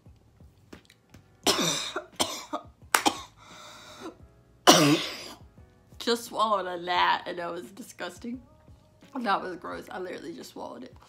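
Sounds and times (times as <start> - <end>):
woman coughing and gagging: 1.4 - 3.4, 4.6 - 5.4.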